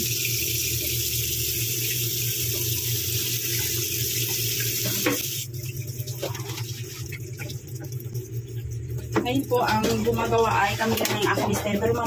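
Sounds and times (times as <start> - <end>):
tap water splashing into sink: 1.8 - 8.3, 9.0 - 11.8.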